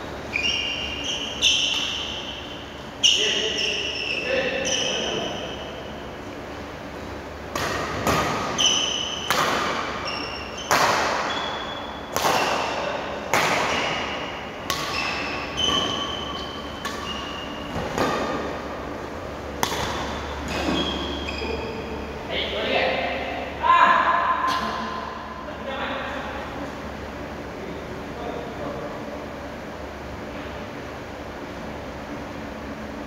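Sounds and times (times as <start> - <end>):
shoes squeaking on court: 0.3 - 5.8, 7.6 - 12.8, 13.6 - 18.6, 19.7 - 22.2
rackets hitting shuttlecock: 1.1 - 2.6, 7.5 - 18.8, 19.5 - 21.3.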